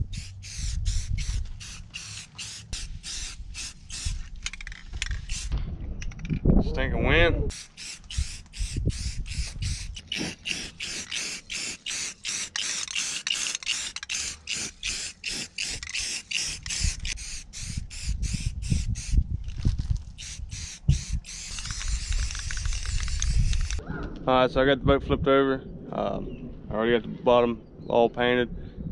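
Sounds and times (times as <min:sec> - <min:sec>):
wind rumble on microphone: 0:00.0 - 0:01.7, 0:03.4 - 0:07.5, 0:08.1 - 0:10.0, 0:16.6 - 0:28.9
spray paint can hissing: 0:00.0 - 0:05.6, 0:07.5 - 0:23.8.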